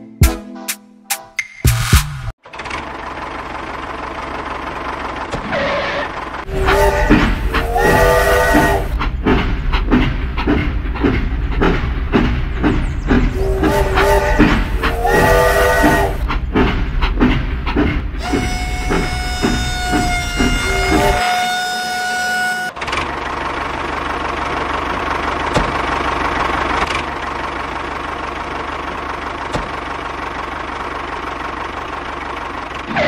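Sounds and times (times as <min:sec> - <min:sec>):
toy train chugging and whistle: 0:05.9 - 0:08.9, 0:13.3 - 0:16.2, 0:18.2 - 0:22.9.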